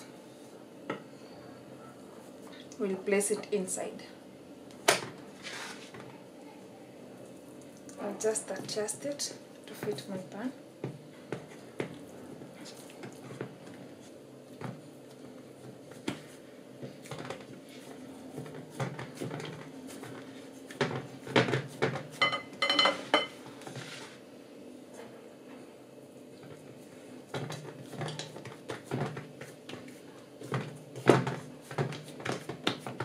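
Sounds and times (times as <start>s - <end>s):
hands patting dough in pan: 10.8s - 23.9s, 26.4s - 33.0s
pan clattering on tiled counter: 21.3s - 23.4s.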